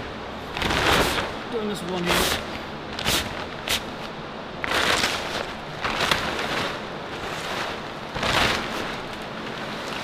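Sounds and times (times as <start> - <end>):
plastic tarp rustling: 0.5 - 2.4, 4.6 - 10.0.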